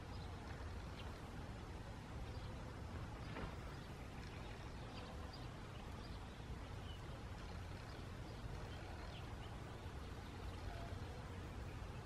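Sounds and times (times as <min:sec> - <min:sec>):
distant birds chirping: 0:00.0 - 0:12.0.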